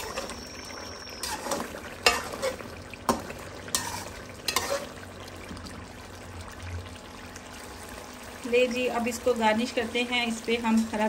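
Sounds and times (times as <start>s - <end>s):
metal spoon scraping a pan: 0.0s - 0.5s, 1.1s - 5.0s
sauce sizzling: 0.0s - 11.0s.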